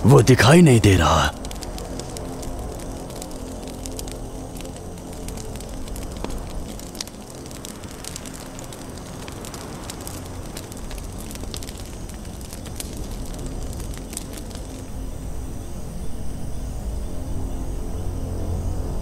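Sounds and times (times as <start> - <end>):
campfire crackling and popping: 0.0 - 16.0.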